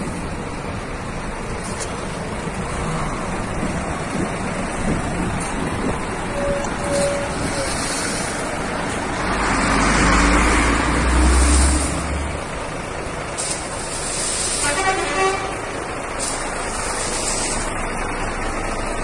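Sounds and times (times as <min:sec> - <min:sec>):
deep vehicle rumble: 0:00.0 - 0:19.0
outdoor traffic noise: 0:00.0 - 0:19.0
short tone: 0:06.3 - 0:07.7.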